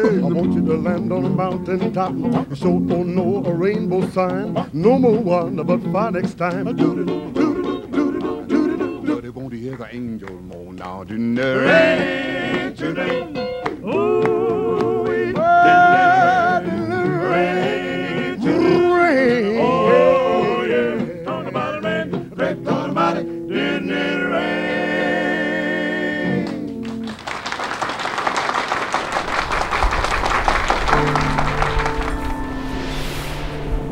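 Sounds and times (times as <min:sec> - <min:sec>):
male vocal group singing harmony: 0:00.0 - 0:09.4, 0:11.0 - 0:26.7
audience applauding: 0:26.4 - 0:32.8.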